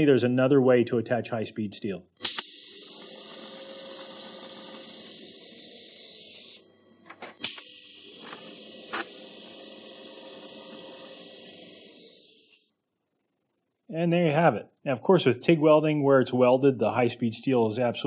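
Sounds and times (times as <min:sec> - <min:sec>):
welding arc hissing: 0:02.3 - 0:06.6, 0:07.4 - 0:12.6.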